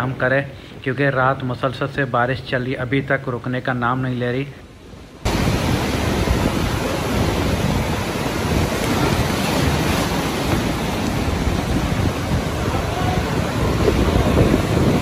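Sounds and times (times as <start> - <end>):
rough sea surf breaking: 4.6 - 15.0
wind buffeting the microphone: 5.2 - 15.0.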